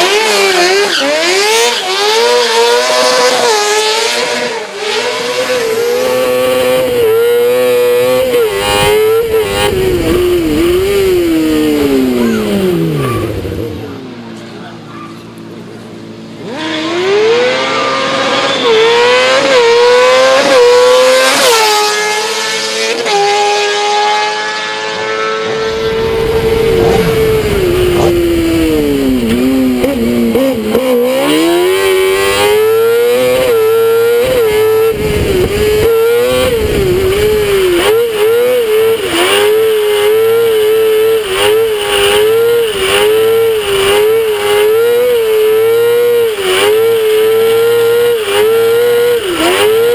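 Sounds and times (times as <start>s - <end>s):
buggy engine accelerating: 0.0s - 49.9s
wind rumble on microphone: 8.5s - 11.9s, 25.7s - 29.8s, 34.8s - 37.8s.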